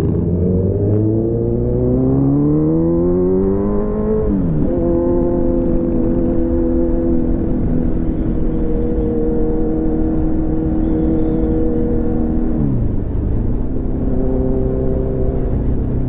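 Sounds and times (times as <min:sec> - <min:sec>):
motorcycle engine cruising: 0:00.0 - 0:16.0.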